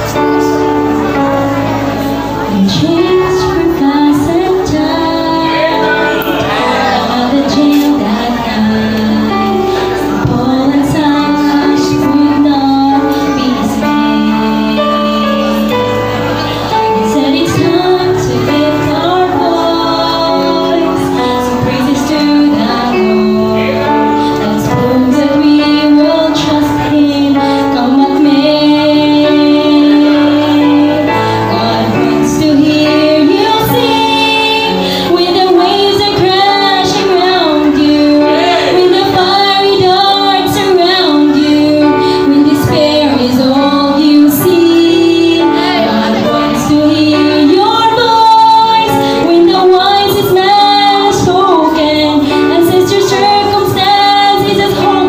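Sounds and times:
instrumental accompaniment: 0.0s - 55.0s
woman singing into microphone: 0.0s - 55.0s.

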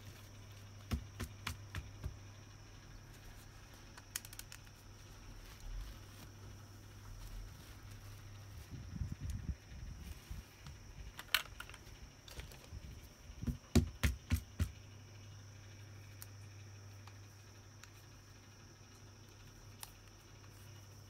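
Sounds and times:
hands rustling plastic doll: 3.0s - 13.1s.

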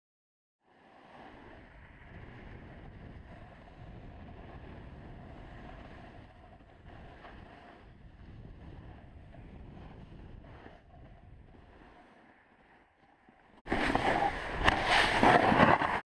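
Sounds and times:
snowboard sliding on snow: 0.7s - 16.0s
wind buffeting microphone: 1.3s - 12.7s.

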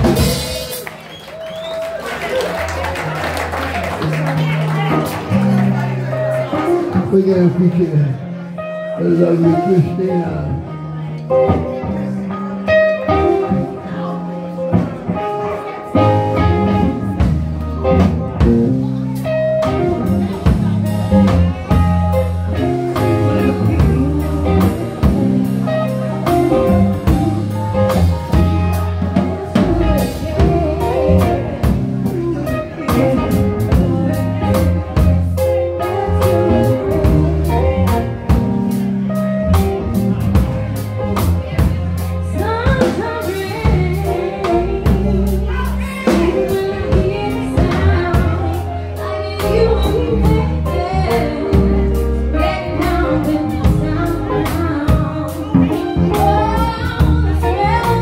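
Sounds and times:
drum kit beat: 0.0s - 7.1s, 14.6s - 58.0s
electric bass: 0.0s - 58.0s
electric guitar: 0.0s - 58.0s
woman singing lead: 22.1s - 38.2s, 41.6s - 58.0s.

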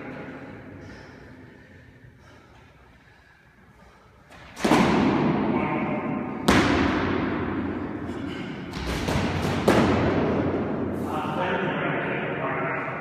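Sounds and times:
practice swords striking with echo: 4.4s - 13.0s.

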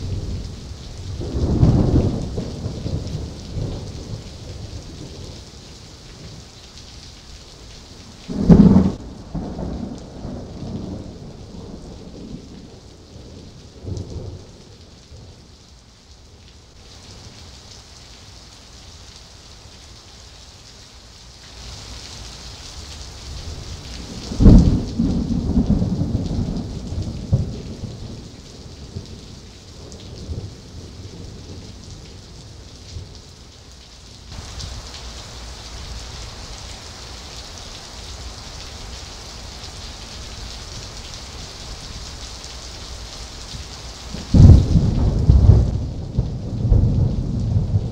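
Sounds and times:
low thunder rumbling: 0.0s - 5.4s, 8.2s - 15.3s, 23.5s - 32.2s, 44.1s - 47.9s
heavy rain falling: 0.0s - 47.9s
thunderclaps: 8.3s - 12.7s, 24.0s - 28.2s, 44.1s - 47.9s.

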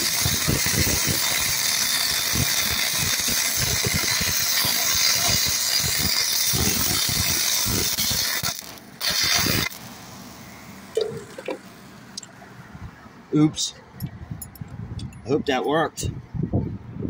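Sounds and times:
welding arc crackling and hissing: 0.0s - 11.8s.

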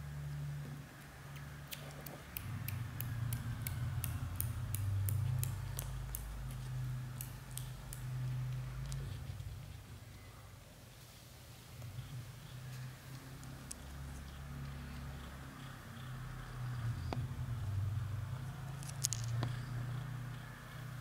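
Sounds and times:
kittens suckling wet clicks: 1.0s - 9.6s
cat purring: 1.8s - 10.2s, 11.6s - 21.0s.

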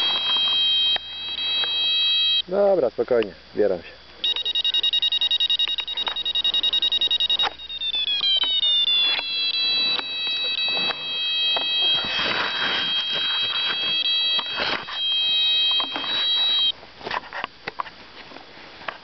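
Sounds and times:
variometer beeping: 0.0s - 2.5s, 4.2s - 16.8s
steady high tone: 0.0s - 2.7s, 4.2s - 16.8s.

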